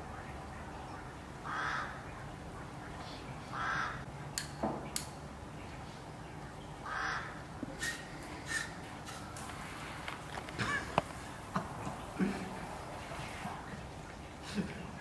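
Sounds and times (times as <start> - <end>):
crow cawing: 1.4 - 2.1, 3.5 - 4.1, 6.8 - 7.5.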